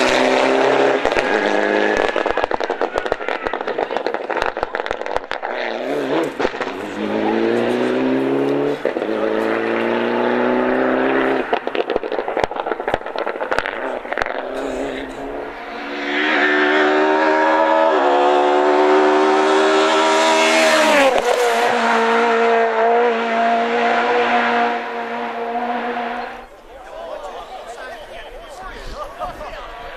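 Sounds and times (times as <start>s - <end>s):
rally car at full throttle: 0.0s - 26.7s
car engine passing: 0.0s - 28.3s
exhaust cracks and pops: 0.9s - 6.8s, 11.4s - 14.4s.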